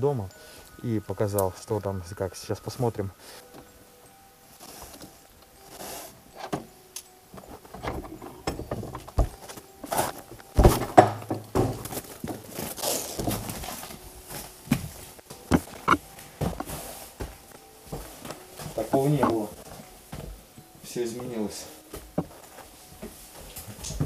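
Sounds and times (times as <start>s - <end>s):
footsteps: 4.5s - 20.6s, 21.6s - 24.0s.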